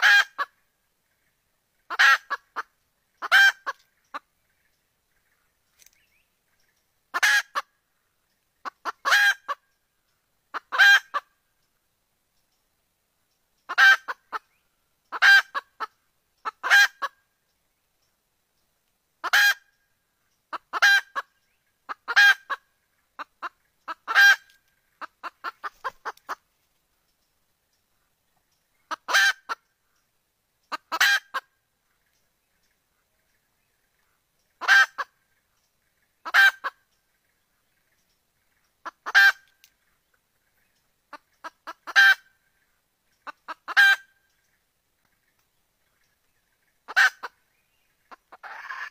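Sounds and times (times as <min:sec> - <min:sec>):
hen clucking: 0:00.0 - 0:00.6, 0:01.8 - 0:04.3, 0:07.1 - 0:07.7, 0:08.6 - 0:09.6, 0:10.5 - 0:11.4, 0:13.6 - 0:14.5, 0:15.1 - 0:17.2, 0:19.2 - 0:19.7, 0:20.5 - 0:26.5, 0:28.9 - 0:29.7, 0:30.6 - 0:31.5, 0:34.5 - 0:35.2, 0:35.9 - 0:36.8, 0:38.8 - 0:39.6, 0:41.1 - 0:42.4, 0:43.2 - 0:44.2, 0:46.8 - 0:47.4, 0:48.0 - 0:48.9.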